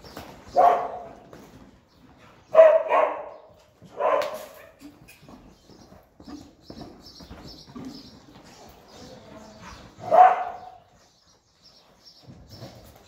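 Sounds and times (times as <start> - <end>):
dog barking: 0.6 - 1.1, 2.5 - 4.7, 10.0 - 10.8.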